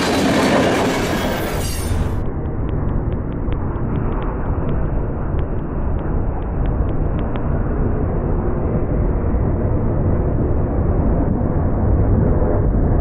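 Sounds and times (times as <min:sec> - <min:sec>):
steel wheels rumbling on rails: 0:00.0 - 0:07.4.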